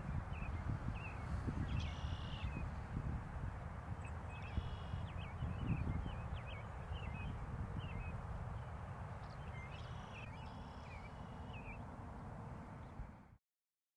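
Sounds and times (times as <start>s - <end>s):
small birds chirping: 0.1s - 2.7s, 4.0s - 11.8s
buzzy trilled bird calls: 0.3s - 2.6s, 9.2s - 11.8s.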